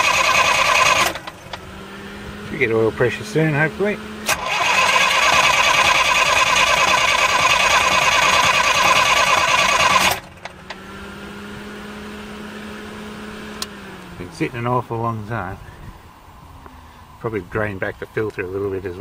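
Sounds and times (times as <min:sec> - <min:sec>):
diesel engine cranking: 0:00.0 - 0:19.0
faint steady hum: 0:13.6 - 0:19.0.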